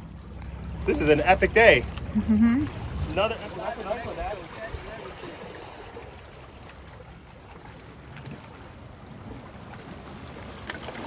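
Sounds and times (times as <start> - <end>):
water lapping against rocks: 0.3 - 11.0
wind on microphone: 2.6 - 3.4.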